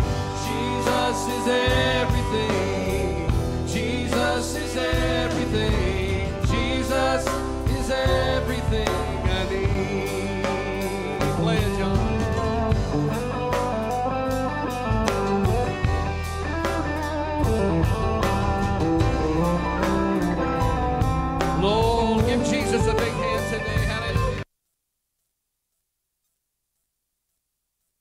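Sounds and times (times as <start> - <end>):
person singing: 0.0 - 13.0
bass guitar: 0.0 - 24.4
guitar: 0.0 - 24.4.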